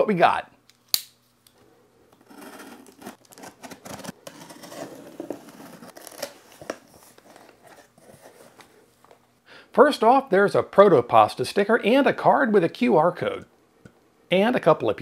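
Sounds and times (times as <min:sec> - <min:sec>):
cardboard flaps rustling and scraping: 0:02.2 - 0:08.8.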